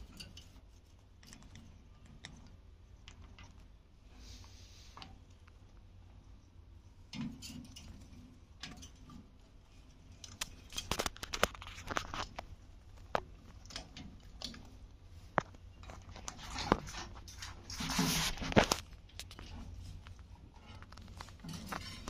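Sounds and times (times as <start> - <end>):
rustling: 7.6 - 22.0.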